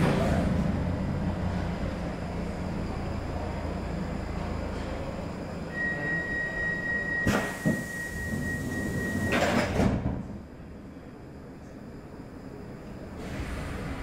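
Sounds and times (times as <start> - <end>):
train doors shutting: 0.0 - 2.0, 2.8 - 10.8, 11.5 - 14.0
hiss of air: 13.2 - 14.0.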